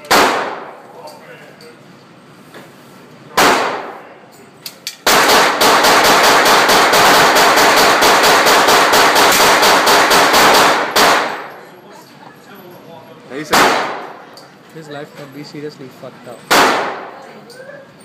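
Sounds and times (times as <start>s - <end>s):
rifle shots echoing indoors: 0.0s - 0.8s, 3.3s - 4.0s, 5.0s - 11.6s, 13.5s - 14.2s, 16.5s - 17.2s.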